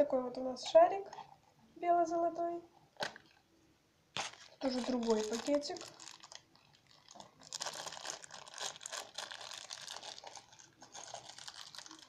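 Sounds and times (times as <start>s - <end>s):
plastic wrapper crinkling: 4.1s - 12.0s.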